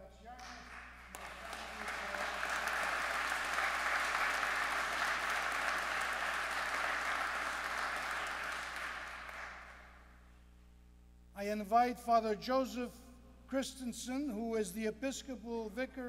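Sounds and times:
crowd applauding: 0.4s - 10.0s.

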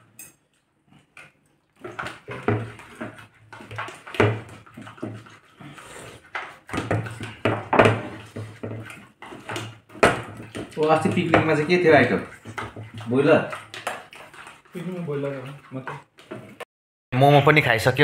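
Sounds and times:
man chewing and smacking: 0.4s - 7.5s, 12.3s - 16.6s.

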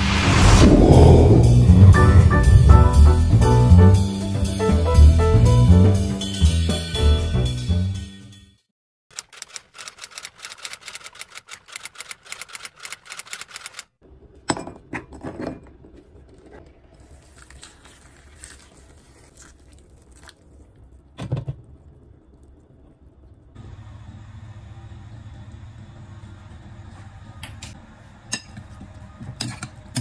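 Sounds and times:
rapid keyboard typing clicks: 9.1s - 13.9s.

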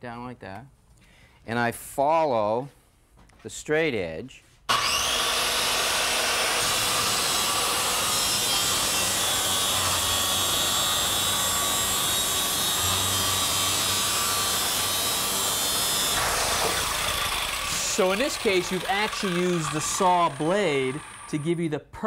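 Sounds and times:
circular saw cutting plywood: 4.7s - 21.6s.

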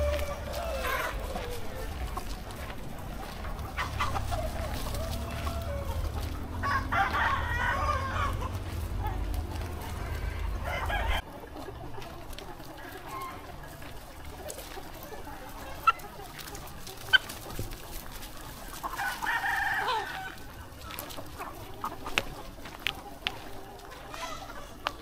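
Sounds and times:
rooster crowing: 0.0s - 2.1s, 3.7s - 11.2s, 18.9s - 20.5s
chickens clucking and calling: 0.0s - 25.0s
sharp chicken calls: 0.0s - 25.0s.

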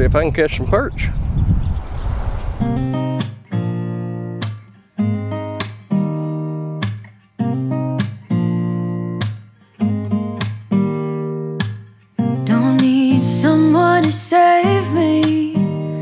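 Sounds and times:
acoustic guitar strumming chords: 2.8s - 16.0s.

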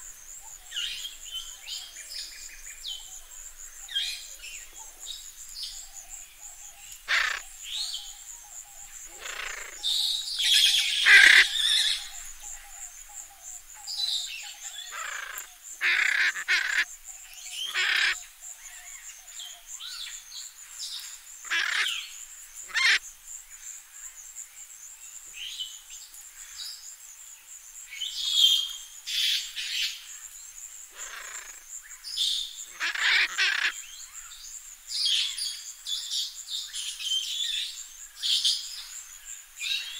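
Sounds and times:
parrots squawking and screeching: 7.1s - 7.4s, 10.9s - 11.9s, 15.0s - 16.8s, 17.7s - 18.2s, 21.5s - 21.9s, 22.7s - 23.0s, 32.7s - 33.8s.

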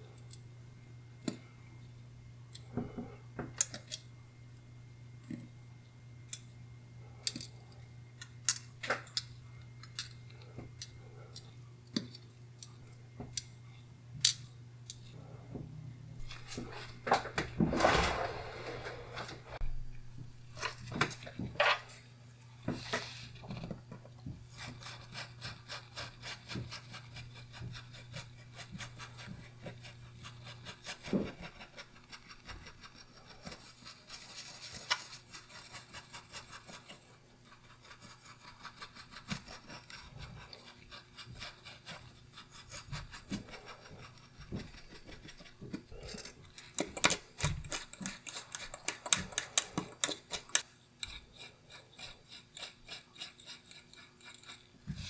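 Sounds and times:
bristle brush scrubbing metal: 24.4s - 55.0s.

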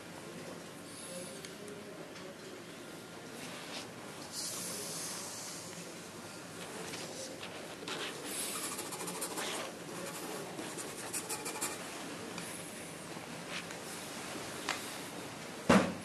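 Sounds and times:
pen nib scratching on paper: 7.9s - 11.8s.

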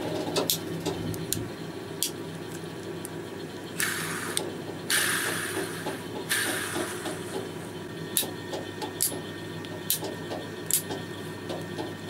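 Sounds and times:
hiss of fidget cube spinning: 3.8s - 7.4s.

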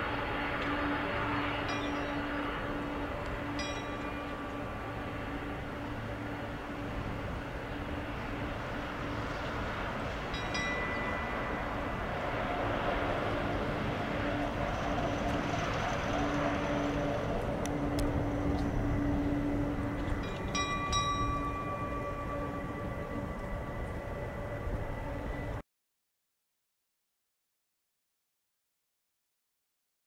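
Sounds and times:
jet engines rumbling: 0.0s - 25.6s.

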